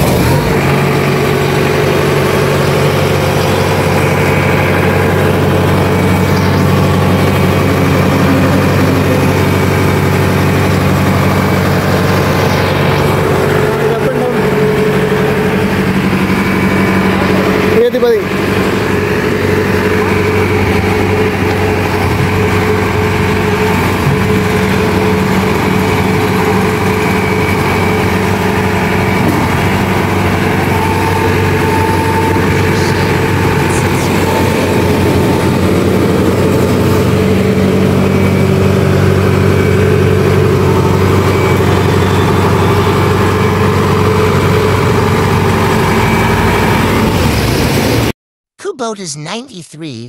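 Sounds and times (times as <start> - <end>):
diesel engine running: 0.0 - 48.1.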